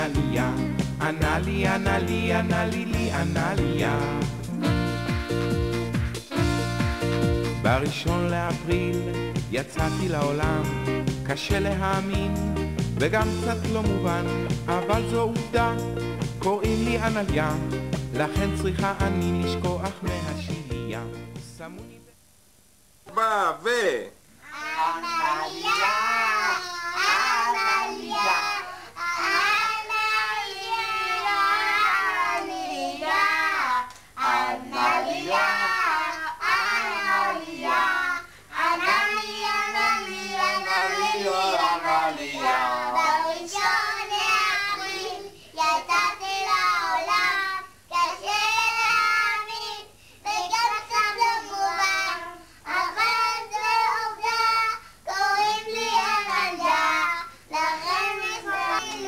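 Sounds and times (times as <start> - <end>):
girls singing together: 24.5 - 59.0.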